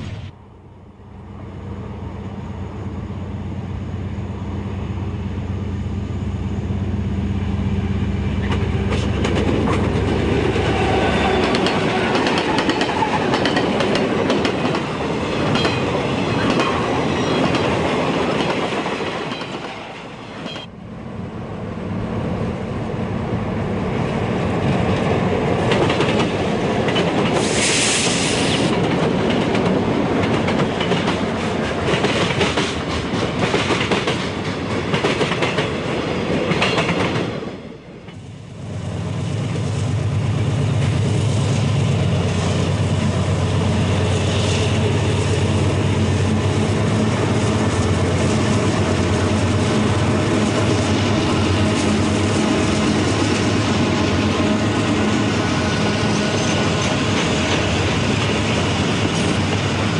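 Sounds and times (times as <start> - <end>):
diesel locomotive engine drone: 0.0 - 59.9
train wheels clattering: 8.4 - 20.7, 25.6 - 37.4.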